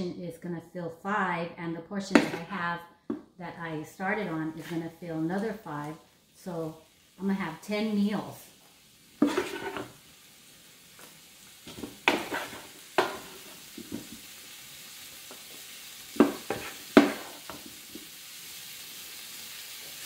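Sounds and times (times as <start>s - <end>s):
frying sizzle: 3.1s - 20.0s
wooden spatulas knocking on pan: 11.7s - 14.1s, 16.2s - 17.6s.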